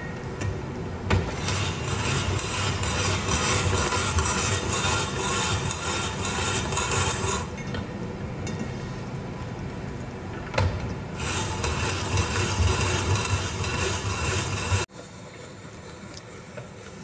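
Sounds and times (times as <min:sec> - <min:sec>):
spiralizer rasping carrot: 0:01.3 - 0:07.5, 0:11.2 - 0:14.9.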